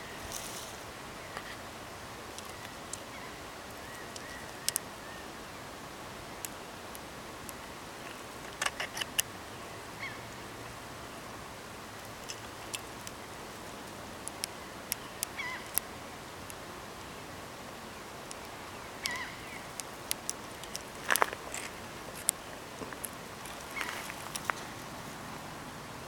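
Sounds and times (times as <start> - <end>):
steady outdoor hiss: 0.0 - 26.0
faint bird chirps: 2.4 - 5.4, 15.0 - 15.8, 18.7 - 19.7.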